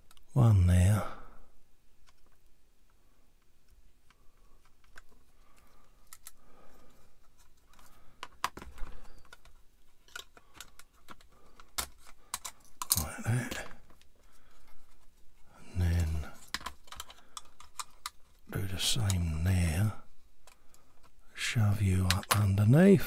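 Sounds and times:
plastic parts clicking: 3.4 - 15.1, 16.0 - 19.2, 22.0 - 22.6.

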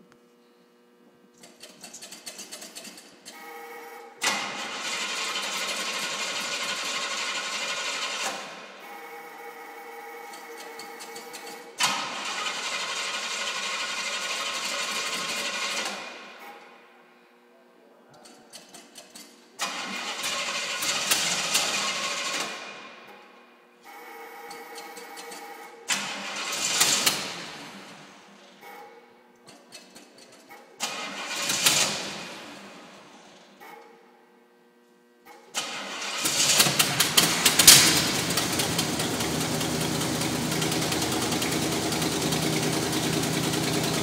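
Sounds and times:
car engine cranking and running: 4.2 - 8.5, 10.3 - 16.2, 18.6 - 22.9, 25.9 - 27.9, 30.8 - 33.0, 35.4 - 44.0
starter motor cranking: 35.5 - 44.0.

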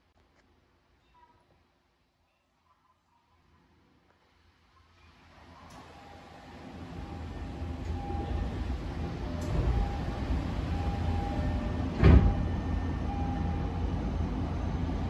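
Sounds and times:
low hum of train car: 2.3 - 15.0
train doors sliding shut: 5.4 - 15.0
doors thudding shut: 11.9 - 12.5.

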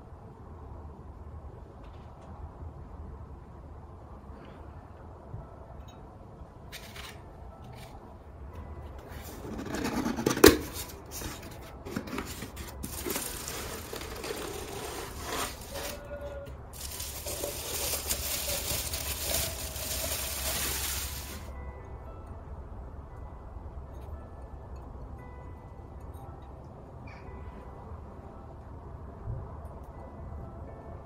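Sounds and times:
cardboard box rustling: 9.4 - 16.1, 16.8 - 21.5
bubble wrap crinkling: 10.9 - 16.1, 16.8 - 21.5.

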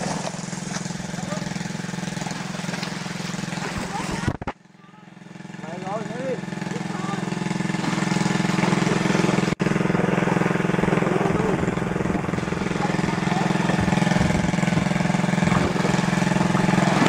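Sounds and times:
small engine running: 0.0 - 17.0.

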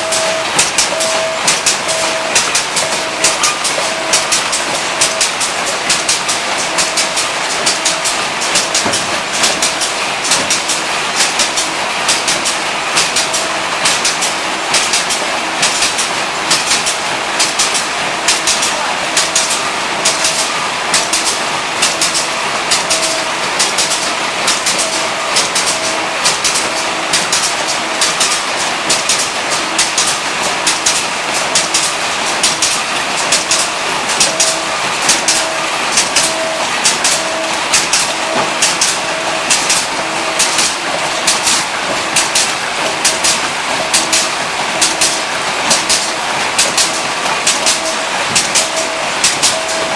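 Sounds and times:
short machine tones: 0.0 - 5.4, 21.9 - 27.2, 34.2 - 40.6, 47.7 - 49.9
packing machines clattering: 0.0 - 49.9.

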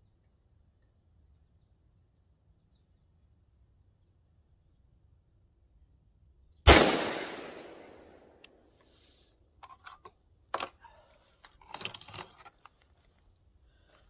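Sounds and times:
rifle shot echoing: 6.7 - 8.4.

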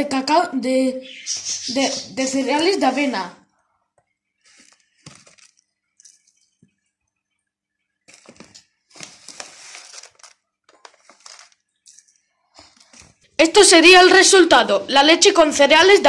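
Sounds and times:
plastic bag rustling: 4.4 - 6.5, 8.1 - 13.3.

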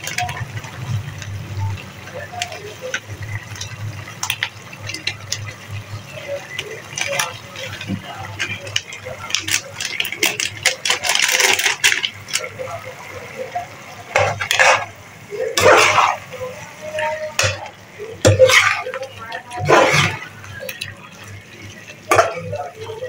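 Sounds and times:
plastic sachet crinkling: 0.0 - 13.2.

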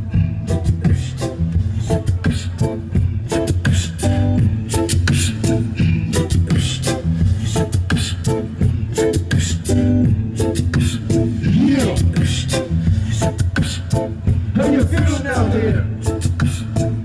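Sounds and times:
deep bass line: 0.0 - 17.0
live vocal percussion: 0.0 - 17.0
looped beatboxed beat: 0.0 - 17.0
vocal swoop: 3.5 - 8.6, 9.2 - 14.1.

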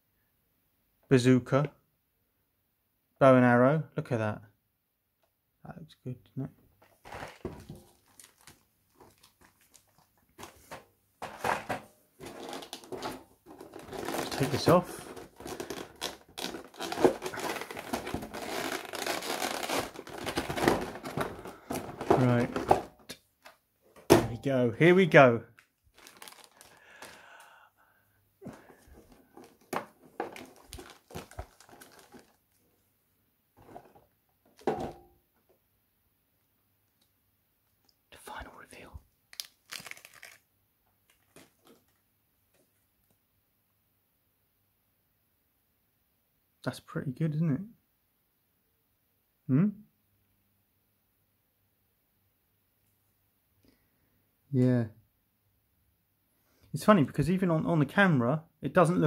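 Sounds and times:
plastic packaging crinkling: 6.8 - 11.4, 12.2 - 23.0, 25.6 - 27.5, 28.4 - 32.6, 39.3 - 42.0
plastic rustling: 6.8 - 23.1, 25.6 - 27.5, 28.4 - 32.8, 33.6 - 35.0, 39.3 - 42.0.

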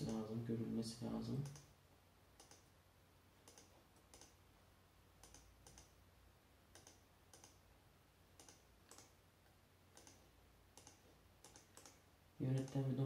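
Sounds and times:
computer mouse clicks: 1.4 - 1.7, 2.4 - 2.7, 3.4 - 4.4, 5.2 - 6.0, 6.7 - 7.6, 8.4 - 13.0.

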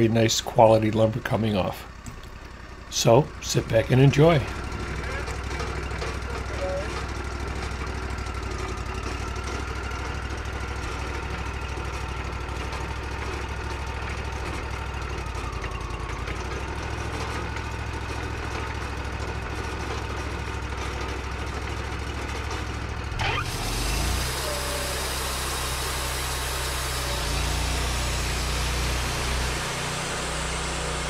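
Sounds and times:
sawmill engine running: 0.0 - 31.0.

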